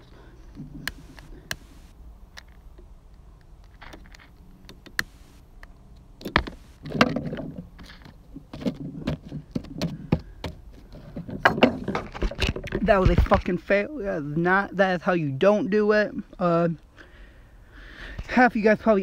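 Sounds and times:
phone handling clicks and rubbing: 0.6 - 2.7.

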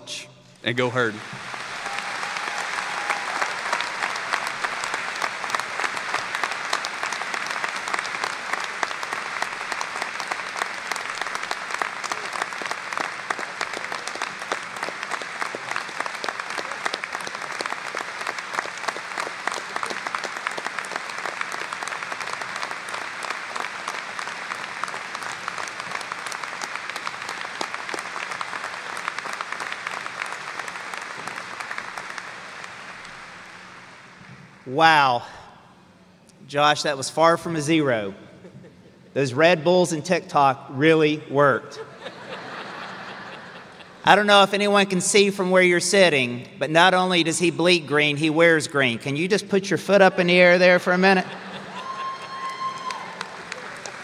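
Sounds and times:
crowd applauding: 0.6 - 34.8, 41.9 - 44.9, 50.8 - 54.0.

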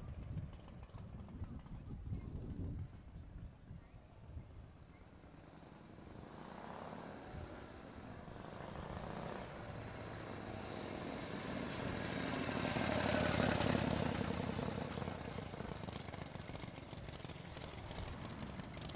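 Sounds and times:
motorcycle riding past: 5.2 - 18.9.

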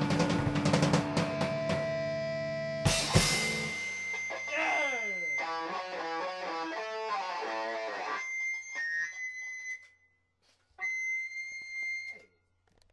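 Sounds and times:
high steady tone: 4.4 - 5.7.

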